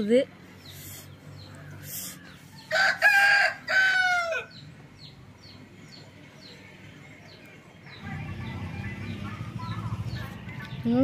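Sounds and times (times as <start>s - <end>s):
rooster crowing: 2.6s - 4.6s.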